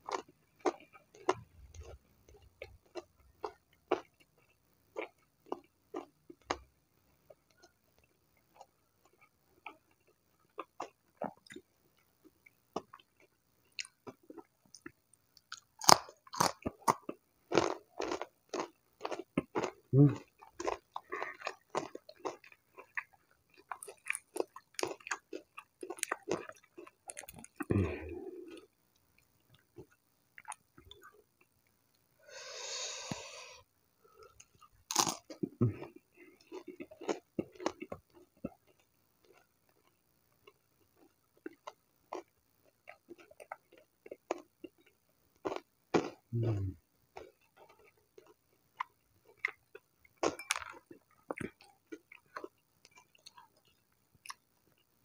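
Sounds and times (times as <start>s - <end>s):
crunchy chewing: 12.7s - 28.7s, 34.2s - 54.9s.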